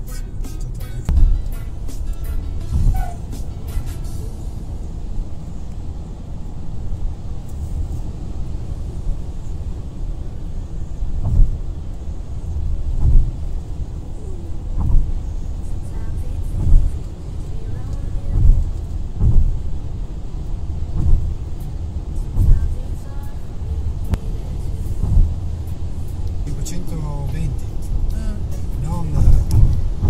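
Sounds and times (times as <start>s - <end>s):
short low thumps: 0.0s - 4.1s, 11.1s - 11.9s, 12.5s - 13.8s, 14.6s - 15.4s, 16.4s - 17.1s, 18.2s - 19.8s, 20.7s - 21.6s, 22.3s - 22.8s, 23.9s - 26.4s, 27.2s - 30.0s
tyre and engine rumble: 0.0s - 30.0s.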